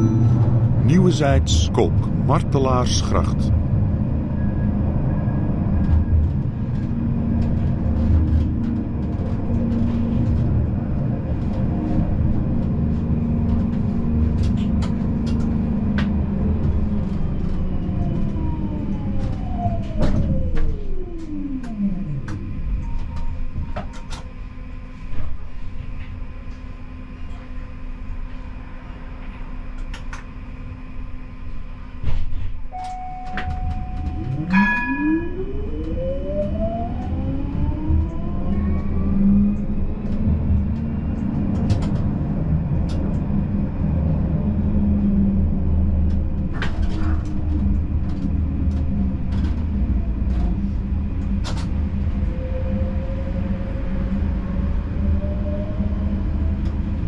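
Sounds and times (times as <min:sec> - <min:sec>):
held electronic tone: 0:00.0 - 0:01.9
tram running rumble: 0:00.0 - 0:57.0
tram traction drive whine: 0:32.8 - 0:57.0.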